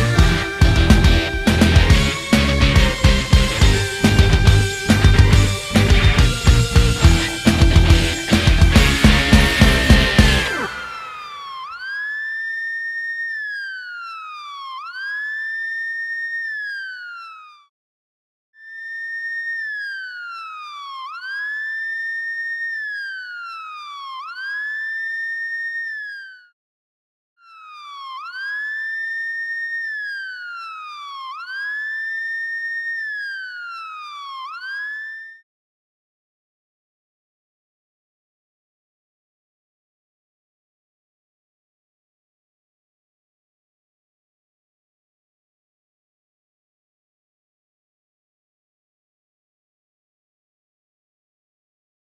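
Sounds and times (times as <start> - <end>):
police siren wailing: 0.0 - 17.7, 18.6 - 26.6, 27.4 - 35.4.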